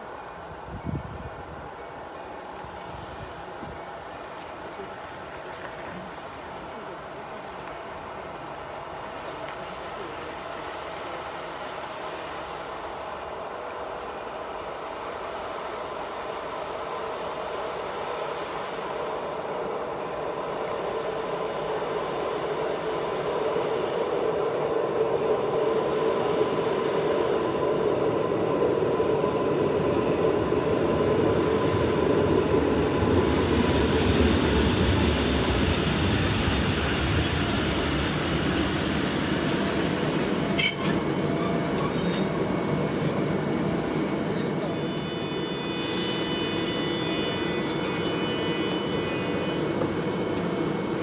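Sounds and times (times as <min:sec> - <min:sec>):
rail running noise: 0:00.0 - 0:51.0
train whine: 0:00.0 - 0:51.0
brake squeals: 0:38.2 - 0:42.8.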